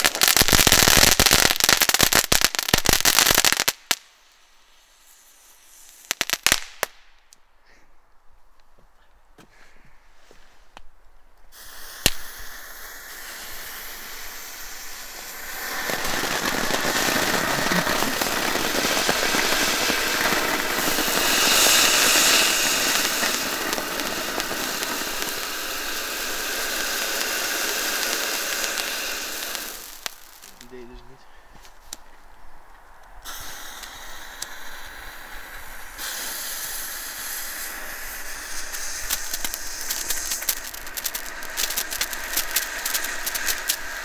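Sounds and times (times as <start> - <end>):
firework fountain hissing: 0.0 - 7.1, 11.5 - 31.2, 33.2 - 44.0
sharp crack: 11.6 - 31.2, 33.0 - 44.0.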